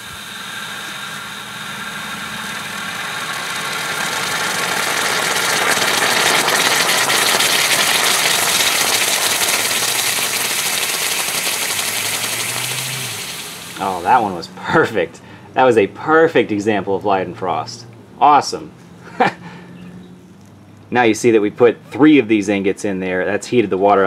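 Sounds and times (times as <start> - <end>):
water sizzling on hot metal: 0.0 - 14.4.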